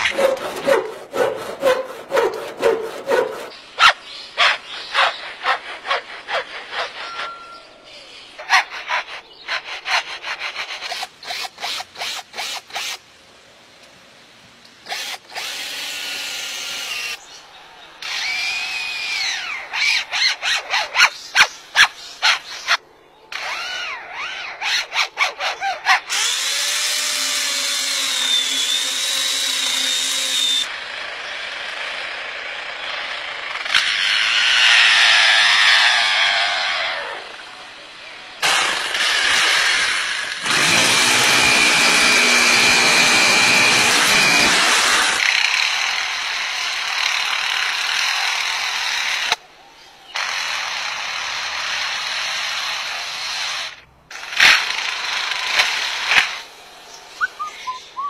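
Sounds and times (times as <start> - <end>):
lyrebird whistled glides: 5.0 - 7.8, 57.2 - 58.0.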